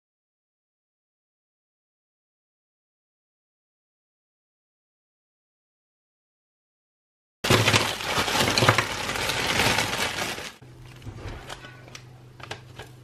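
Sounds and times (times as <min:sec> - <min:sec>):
plastic bag crinkling: 0:07.4 - 0:12.0.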